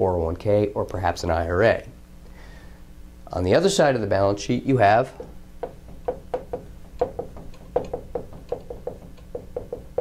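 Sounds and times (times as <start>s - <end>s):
marker tapping on whiteboard: 5.2s - 10.0s.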